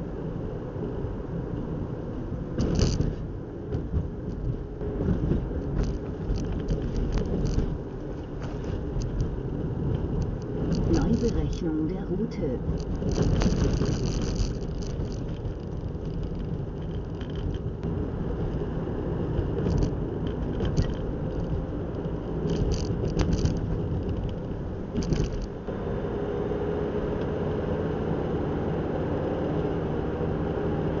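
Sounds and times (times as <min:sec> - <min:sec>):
car engine and tyre rumble: 0:00.0 - 0:31.0
short rattles: 0:05.1 - 0:09.4, 0:12.6 - 0:17.8, 0:22.4 - 0:25.6.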